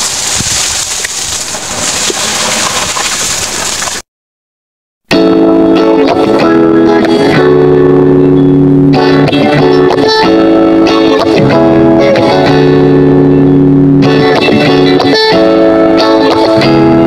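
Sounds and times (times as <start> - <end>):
background music with held chords: 5.1 - 17.0.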